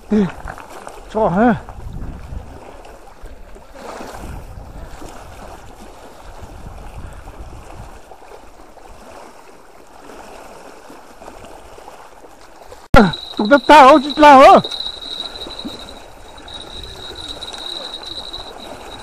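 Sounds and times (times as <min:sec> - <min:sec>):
waves lapping against rocks: 0:00.0 - 0:19.0
wind rumble on microphone: 0:00.2 - 0:09.2, 0:14.6 - 0:19.0.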